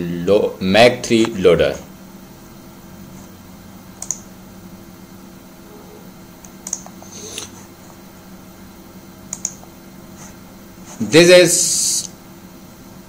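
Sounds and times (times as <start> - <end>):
faint electrical hum: 0.0 - 13.0
computer mouse clicks: 4.0 - 4.2, 6.4 - 7.0, 9.3 - 9.7.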